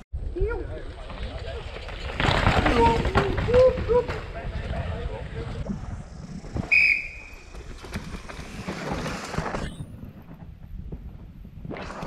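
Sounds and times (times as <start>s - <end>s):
bike tyres tearing through dirt: 0.6s - 10.9s
whistle blast: 6.7s - 7.4s.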